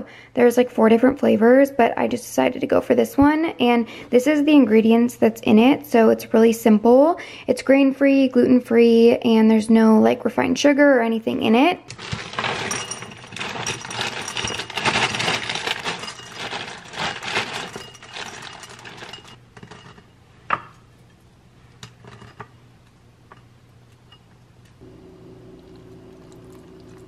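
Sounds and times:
cereal pouring into ceramic bowl: 0:12.0 - 0:19.4.

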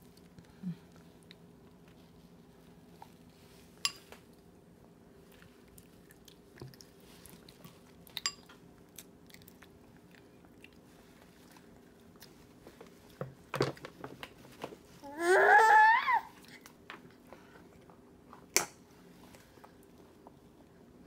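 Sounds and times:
baby chewing food: 0:05.2 - 0:13.2.

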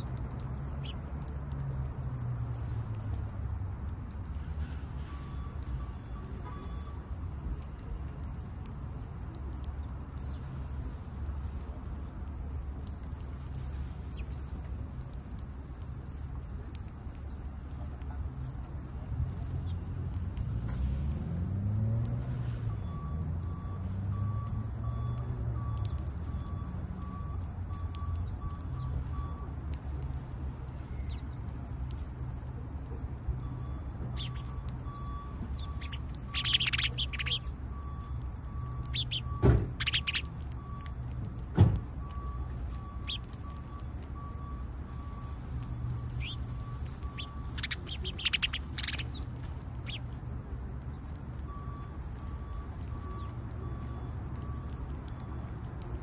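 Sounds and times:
sparrows chirping: 0:00.0 - 0:01.2, 0:02.5 - 0:03.3, 0:05.1 - 0:07.0, 0:09.0 - 0:10.8, 0:12.8 - 0:14.7, 0:25.8 - 0:26.2, 0:27.2 - 0:29.4, 0:30.7 - 0:32.2, 0:33.5 - 0:40.6, 0:42.2 - 0:43.7, 0:45.1 - 0:51.2, 0:51.8 - 0:55.3
faint high beep: 0:05.1 - 0:07.0
steady low rumble: 0:32.0 - 0:54.2.

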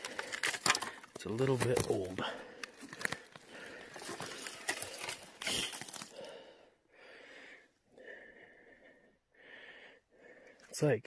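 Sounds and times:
man breathing heavily: 0:00.0 - 0:01.0, 0:02.2 - 0:10.7
rustling with sharp clicks: 0:00.0 - 0:06.2.

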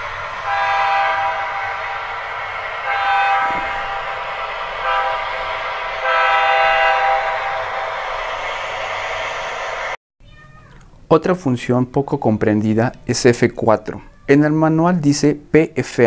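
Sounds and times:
locomotive running sound: 0:00.0 - 0:10.0
model train horn blasts: 0:00.2 - 0:04.2, 0:04.8 - 0:07.6.

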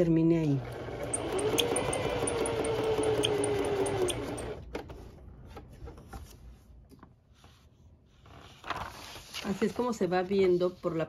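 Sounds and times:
sewing machine running: 0:00.6 - 0:04.6.

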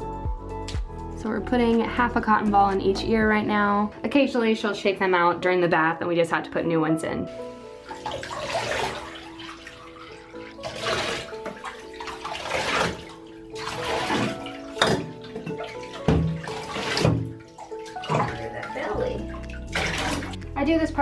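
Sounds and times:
background music: 0:00.0 - 0:21.0
water poured and splashing in tub: 0:07.4 - 0:20.5.

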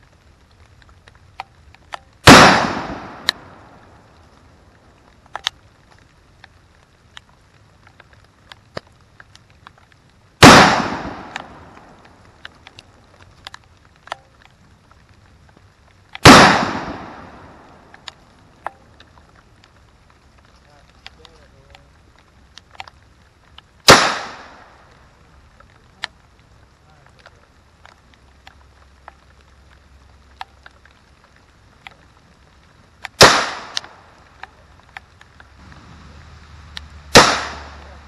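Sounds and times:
gunshots with echo: 0:02.3 - 0:03.3, 0:10.4 - 0:11.4, 0:16.2 - 0:17.3, 0:37.1 - 0:37.8.

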